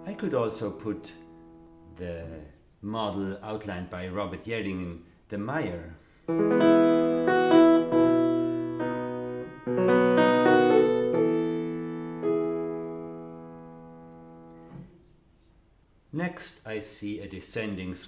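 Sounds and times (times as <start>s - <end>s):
piano chords: 0.0s - 2.2s, 6.3s - 14.9s.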